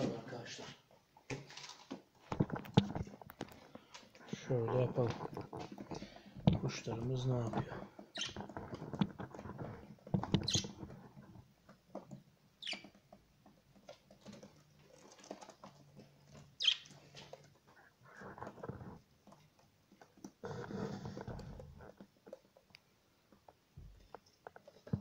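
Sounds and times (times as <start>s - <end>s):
birds scratching and shuffling: 0.3s - 25.0s
soft clicks and rustles: 0.8s - 25.0s.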